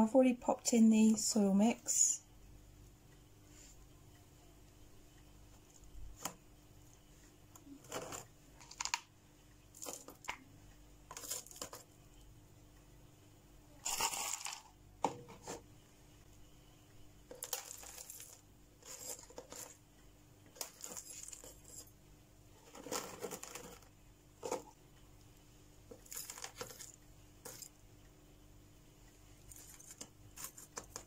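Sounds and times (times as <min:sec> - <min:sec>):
small stones rattling and clinking: 0:13.8 - 0:14.7, 0:17.3 - 0:19.8, 0:20.6 - 0:21.9, 0:22.7 - 0:24.7, 0:25.9 - 0:27.7.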